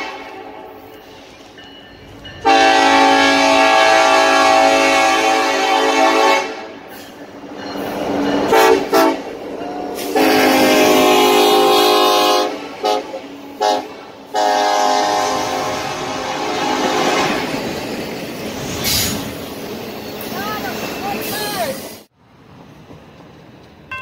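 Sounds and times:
locomotive air horn: 0.0s - 0.9s, 2.4s - 6.8s, 8.5s - 9.2s, 10.0s - 17.5s
passing train rumble: 0.0s - 24.0s.

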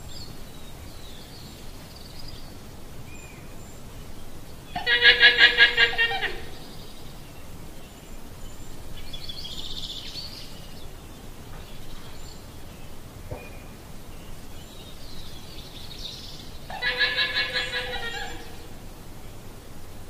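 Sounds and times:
llama calling: 4.7s - 6.6s, 16.7s - 18.7s.

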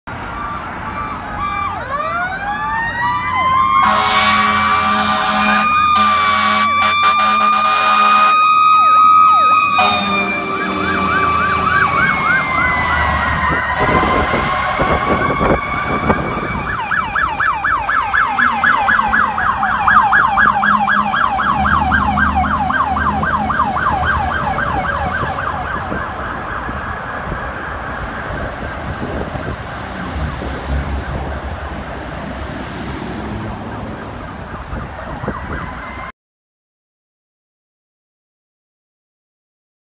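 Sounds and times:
truck engines rumbling: 0.1s - 36.0s
siren wail: 0.1s - 36.1s
rapid siren yelp: 0.2s - 32.0s, 33.5s - 36.1s.

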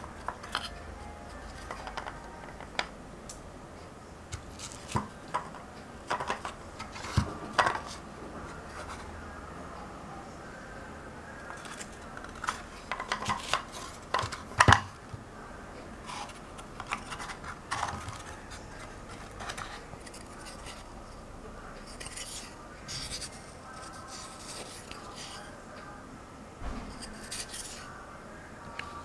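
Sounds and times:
wooden tiles clicking: 1.6s - 2.9s, 4.4s - 8.0s, 11.6s - 14.9s
wood scraping on wood: 16.0s - 20.9s.

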